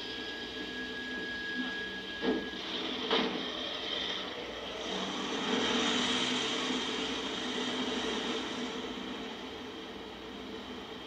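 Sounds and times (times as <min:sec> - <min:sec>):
steady high whine: 0:00.0 - 0:11.0
van engine driving away: 0:04.5 - 0:11.0.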